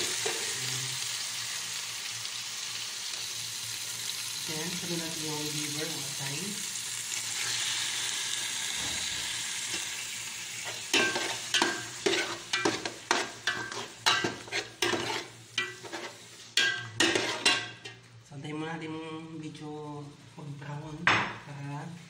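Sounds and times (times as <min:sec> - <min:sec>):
meat sizzling in oil: 0:00.0 - 0:18.1
metal ladle scraping pot: 0:11.0 - 0:18.0.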